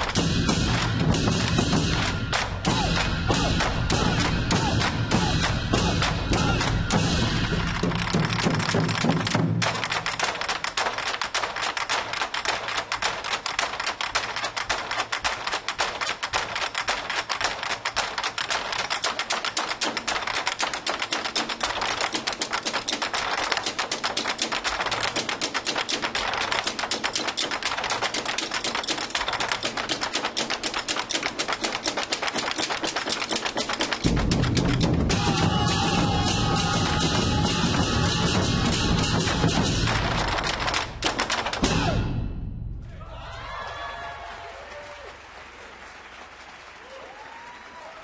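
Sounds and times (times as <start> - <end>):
drum ensemble fast roll: 0.0 - 11.0, 15.6 - 42.5.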